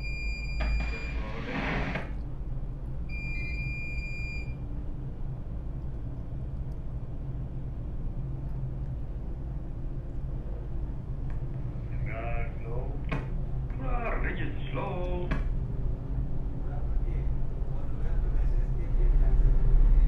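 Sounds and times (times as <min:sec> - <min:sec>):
electronic alarm beep: 0:00.0 - 0:01.3, 0:03.1 - 0:04.6
boat engines rumbling: 0:09.0 - 0:20.0.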